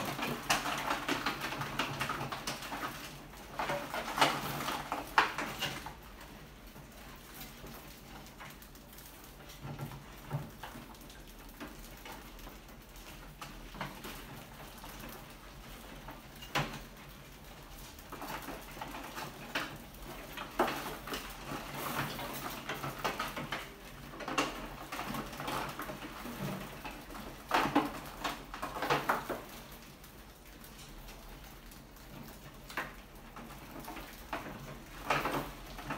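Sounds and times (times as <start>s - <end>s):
rats scratching and scuffling: 0.0s - 35.9s.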